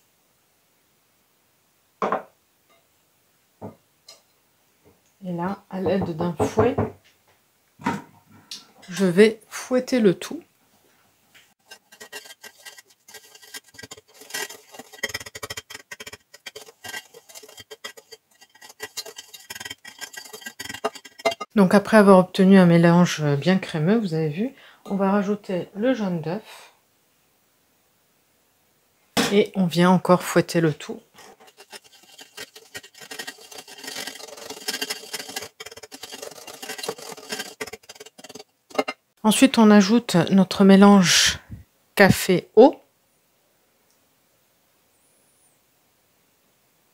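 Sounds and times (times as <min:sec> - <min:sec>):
wire whisk beating in a bowl: 0:11.6 - 0:21.5, 0:31.2 - 0:39.0.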